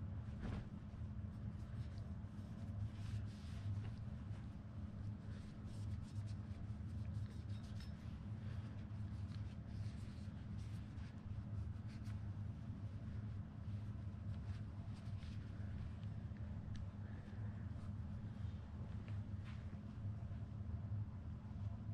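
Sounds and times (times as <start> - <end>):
steady low hum: 0.0 - 21.9
cloth rubbing a spinning reel: 0.9 - 16.2.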